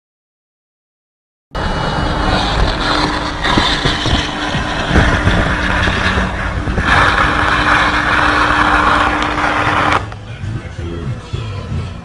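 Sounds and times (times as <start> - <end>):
car fire hissing rush: 1.6 - 10.2.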